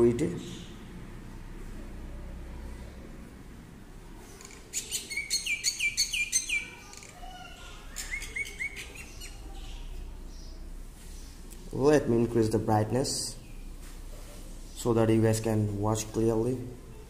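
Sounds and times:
bird chirping: 0.1 - 1.0, 4.2 - 11.9, 13.2 - 13.8.

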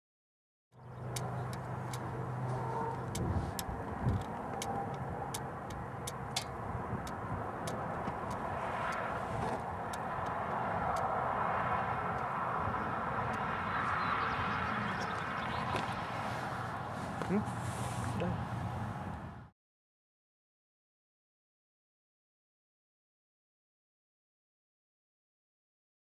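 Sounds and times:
sharp ticks: 0.8 - 11.2, 12.0 - 12.3
car wind and road noise: 0.8 - 19.5.

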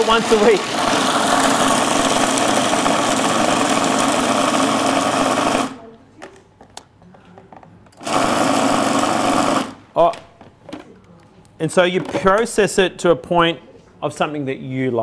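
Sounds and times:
food processor running: 0.0 - 5.8, 8.0 - 9.9.

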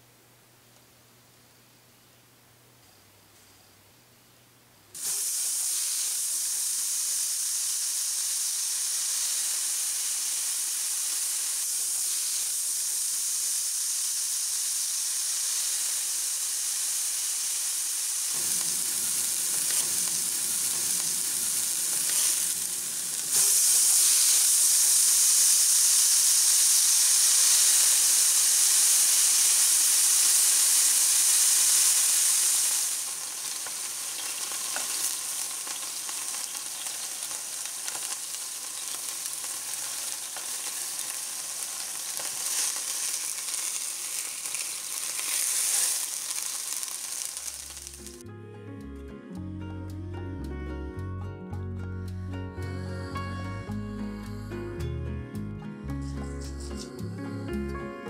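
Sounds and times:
meat sizzling in hot oil: 5.0 - 48.2.

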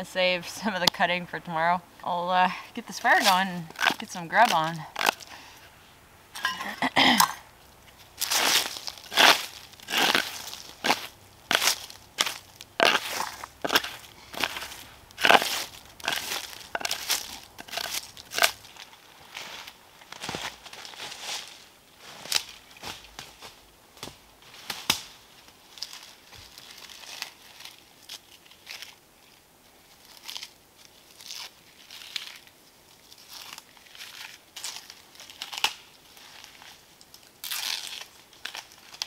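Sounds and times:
bark tearing by hand: 3.2 - 5.3, 8.3 - 18.6, 37.4 - 39.0
twigs snapping: 3.2 - 5.4, 7.9 - 19.0, 24.0 - 25.2, 33.1 - 39.0
footsteps through dry leaves: 8.0 - 23.6, 24.4 - 29.0.

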